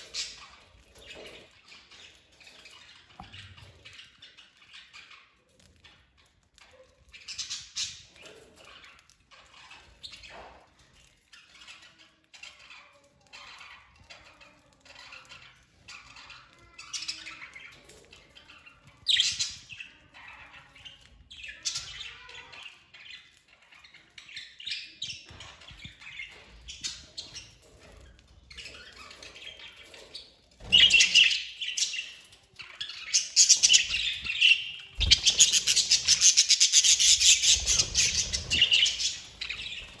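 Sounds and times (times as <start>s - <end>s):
budgerigars chirping: 33.0s - 40.0s
birds squawking: 33.2s - 40.0s
wingbeats: 34.9s - 40.0s.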